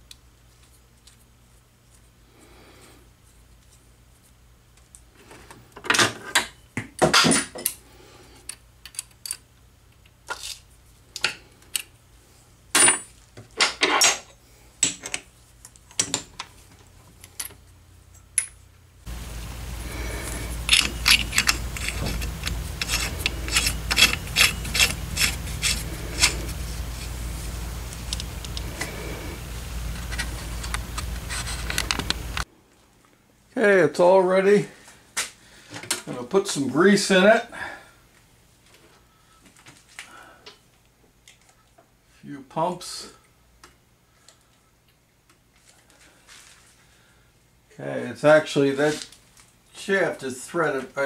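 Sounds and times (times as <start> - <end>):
metal parts clicking and scraping: 8.4 - 9.5, 10.2 - 11.9, 20.0 - 27.2, 30.0 - 32.4
steady low hum: 14.2 - 33.6.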